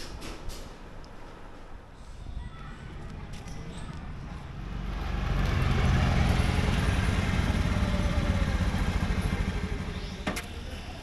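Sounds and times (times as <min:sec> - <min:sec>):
motor scooter engine running: 0:02.9 - 0:10.7.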